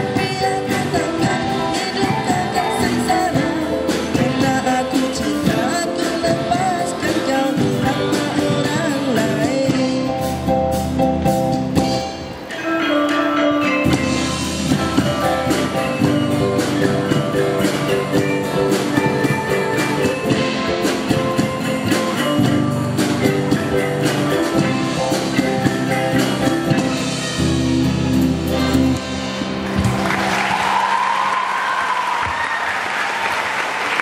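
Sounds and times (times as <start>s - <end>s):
steady drum beat: 0.0s - 12.5s, 13.9s - 30.9s
gamelan ensemble with electric guitar: 0.0s - 31.5s
applause: 29.6s - 34.0s.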